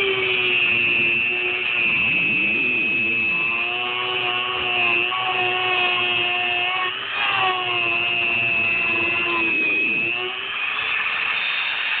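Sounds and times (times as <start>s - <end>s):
rotary tool whining and grinding: 0.0s - 12.0s.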